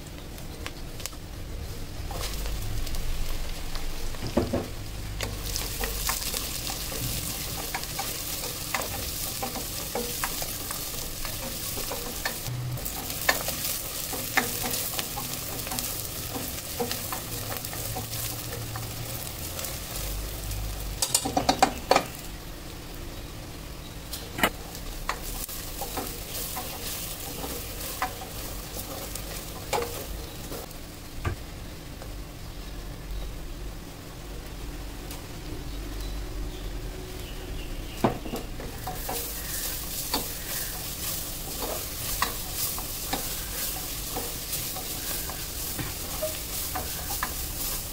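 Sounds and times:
onions sizzling in oil: 0.0s - 47.9s
spatula tapping pot: 4.2s - 20.4s
spatula stirring and scraping: 5.0s - 21.0s, 24.5s - 30.7s, 38.6s - 47.9s.

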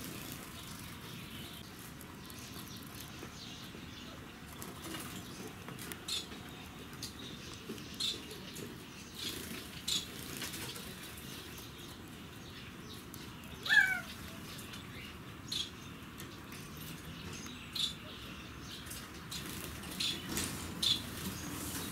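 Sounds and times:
birds calling: 0.0s - 21.9s
drawn-out falling bird call: 13.5s - 14.4s.

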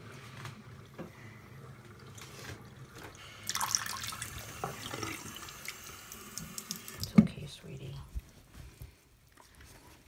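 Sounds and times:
tap water running into sink: 0.4s - 7.4s.

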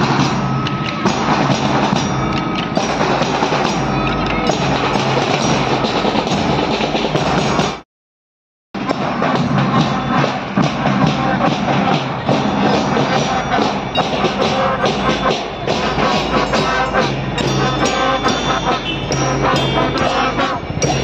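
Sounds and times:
bass and snare drums marching: 0.0s - 7.8s, 8.8s - 21.0s
brass bugles: 9.6s - 21.0s.

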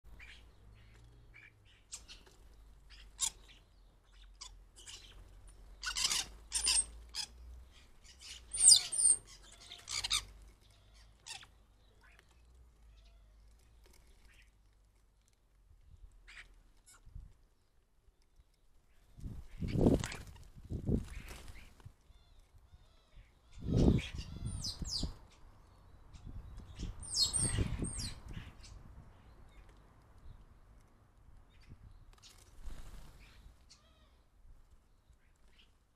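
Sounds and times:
harsh bird calls: 0.2s - 12.3s, 26.2s - 28.8s
starlings chirping and clicking: 0.2s - 14.6s, 21.2s - 32.5s
starlings squawking and whistling: 5.8s - 10.3s, 26.8s - 28.7s.

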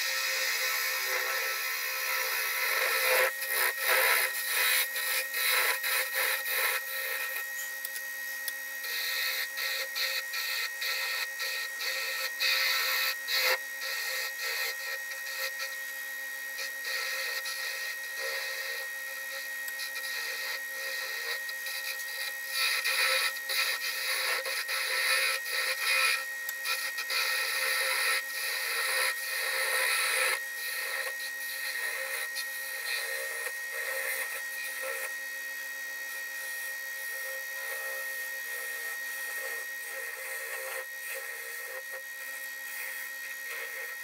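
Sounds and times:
turning tool scraping wood: 0.0s - 7.8s, 8.8s - 35.3s, 36.0s - 44.0s.

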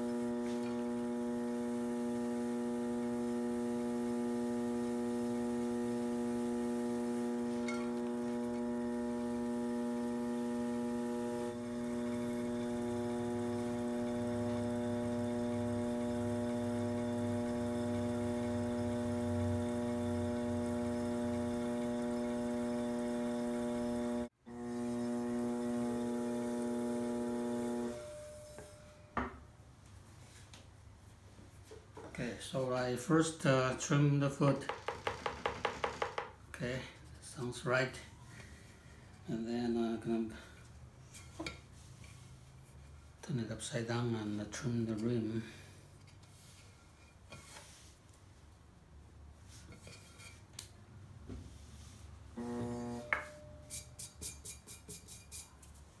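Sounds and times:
potter's wheel motor humming: 0.0s - 29.1s, 34.6s - 36.3s, 52.4s - 53.7s.

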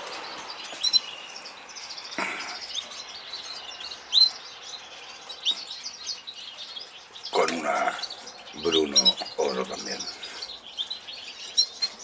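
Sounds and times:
canaries twittering: 0.0s - 12.0s.

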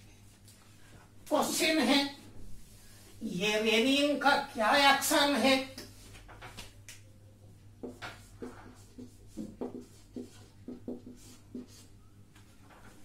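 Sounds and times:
marker writing on whiteboard: 7.8s - 12.0s.

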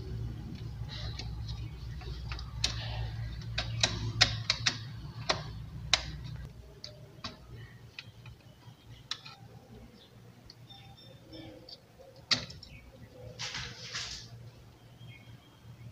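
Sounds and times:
wires clicking against switch board: 0.5s - 9.8s, 11.7s - 14.2s.

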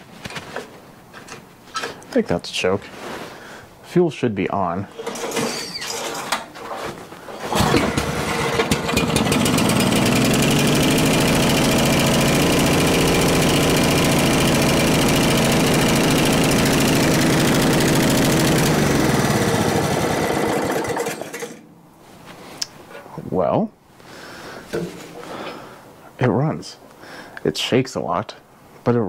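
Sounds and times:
small engine running: 7.5s - 21.6s.

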